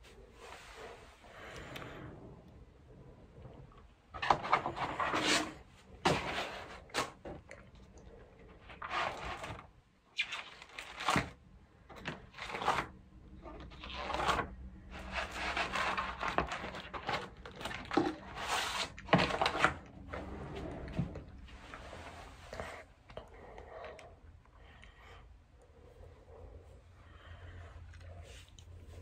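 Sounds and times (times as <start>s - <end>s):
plastic pages rustling: 10.2s - 13.0s, 13.6s - 20.2s.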